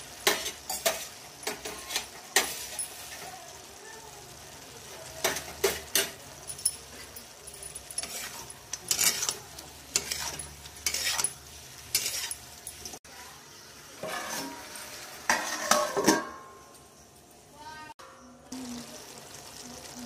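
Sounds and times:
metal spatula scraping a pan: 0.0s - 3.4s, 5.1s - 13.0s, 13.9s - 16.8s.

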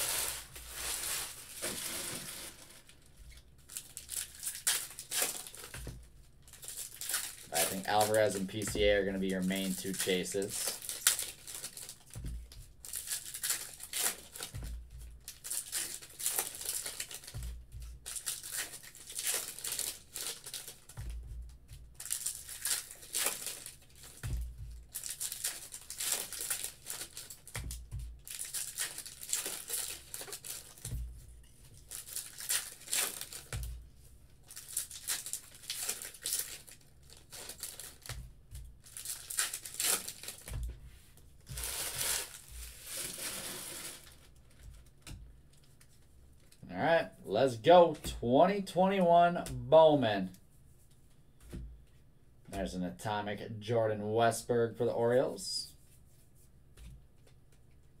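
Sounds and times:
foil packs tearing and crinkling: 0.0s - 5.9s, 6.5s - 12.2s, 12.8s - 21.1s, 21.9s - 31.0s, 31.7s - 33.7s, 34.4s - 38.2s, 38.8s - 40.6s, 41.5s - 44.6s.

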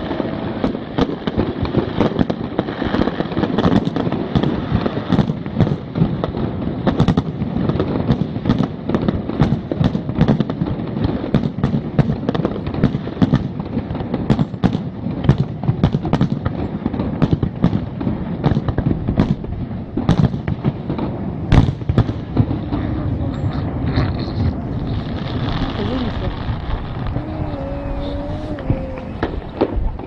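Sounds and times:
firework bangs: 0.0s - 30.0s
low rumble: 22.9s - 30.0s.

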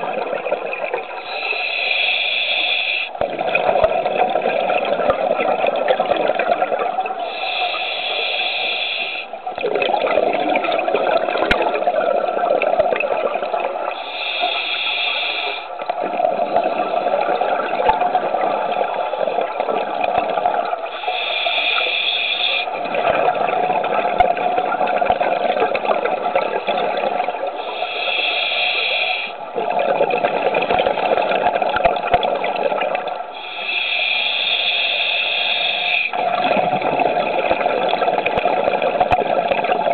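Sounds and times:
exhaled air bubbling: 0.0s - 39.9s
regulator inhale hiss: 1.2s - 3.2s, 7.2s - 9.4s, 13.9s - 15.7s, 20.9s - 22.7s, 27.6s - 29.4s, 33.3s - 36.2s.

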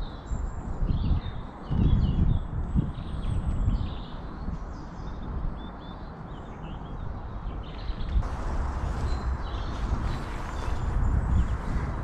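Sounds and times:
low wind rumble on microphone: 0.0s - 12.0s
small birds chirping: 0.0s - 12.0s
rustling hiss: 8.2s - 12.0s.

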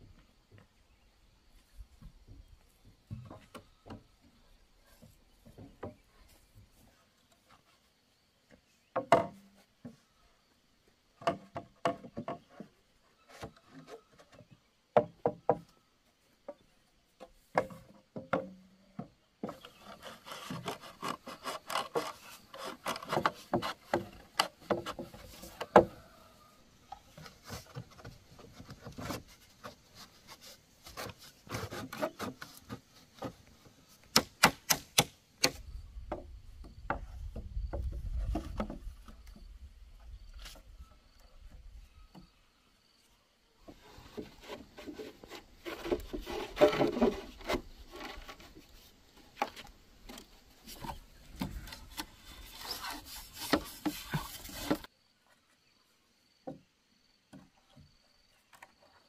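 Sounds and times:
wood rubbing and scraping: 16.4s - 34.8s, 43.6s - 55.6s.

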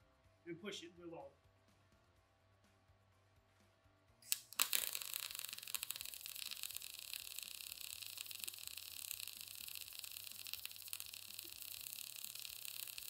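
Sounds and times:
welding arc crackling sizzle: 4.2s - 13.0s.

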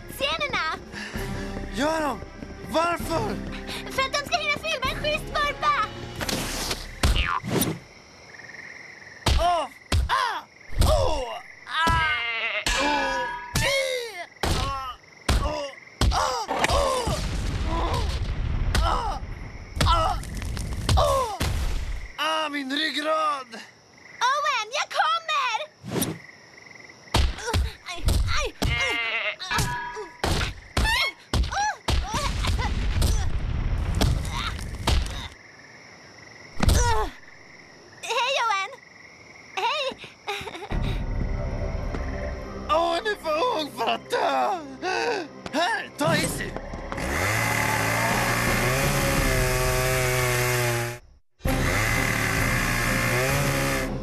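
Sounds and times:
night insects chirring: 0.0s - 54.0s.

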